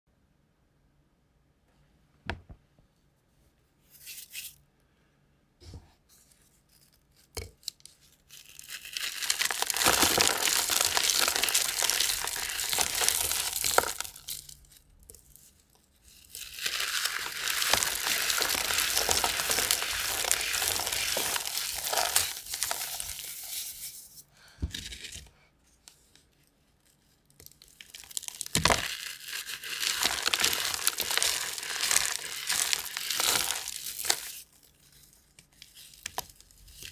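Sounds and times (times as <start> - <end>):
chalk blocks crunching: 6.6 - 24.0, 27.2 - 36.9.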